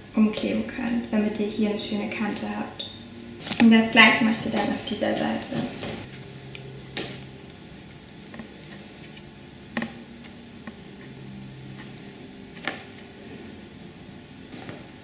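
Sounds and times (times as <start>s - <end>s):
paper folding and handling: 3.4s - 3.7s.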